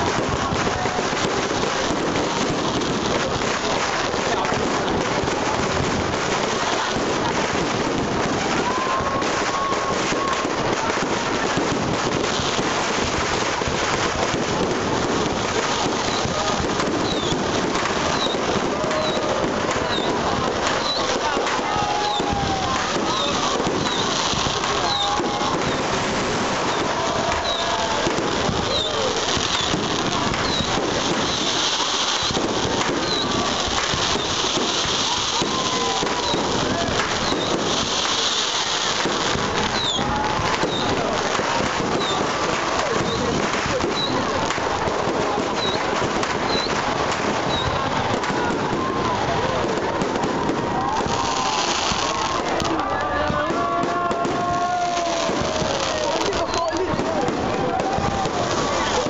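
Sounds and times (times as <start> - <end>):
fireworks crackling: 0.0 - 59.0
faint firework whistle: 15.5 - 44.6, 45.4 - 59.0.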